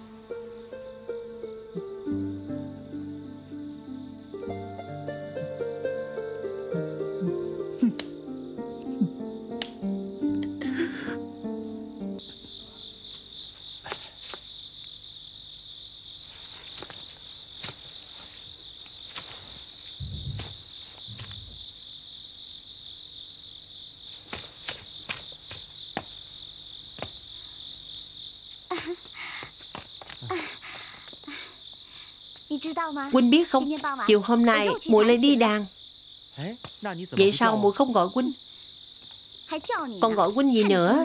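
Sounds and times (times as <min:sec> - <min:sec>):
crickets chirping: 0:00.0 - 0:41.0
soft low thuds: 0:19.9 - 0:21.7.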